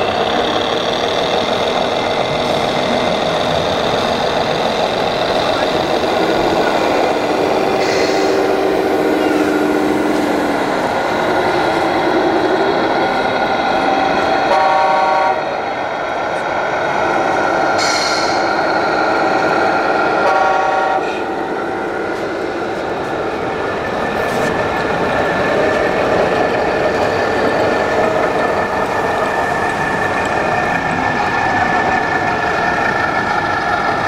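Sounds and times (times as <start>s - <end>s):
short horn blasts: 14.5s - 15.4s.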